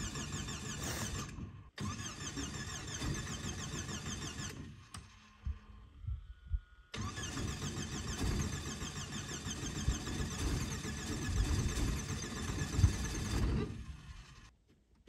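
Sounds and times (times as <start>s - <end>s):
helicopter engine cranking: 0.0s - 6.3s, 6.9s - 14.5s.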